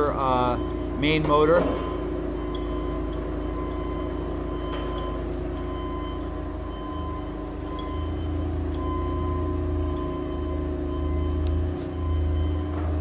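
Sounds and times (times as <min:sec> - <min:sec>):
lathe motor humming and whining: 0:00.0 - 0:13.0.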